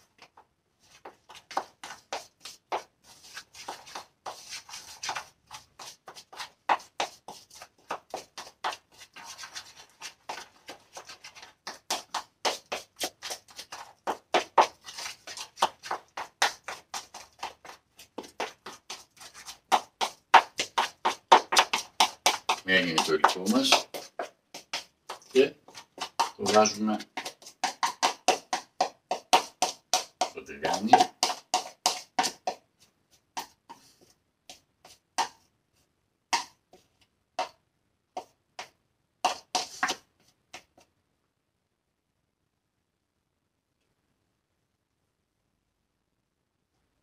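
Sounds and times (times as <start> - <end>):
utensil beating batter in bowl: 1.4 - 33.9, 38.2 - 40.0
utensil tapping a bowl: 26.2 - 32.5.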